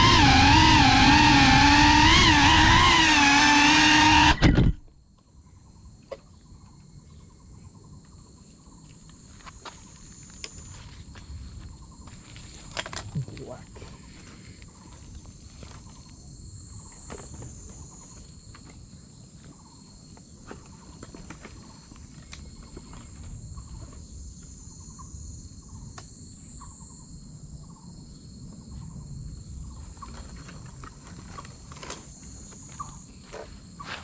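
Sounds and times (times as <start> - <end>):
insects shrilling: 0.0 - 4.7.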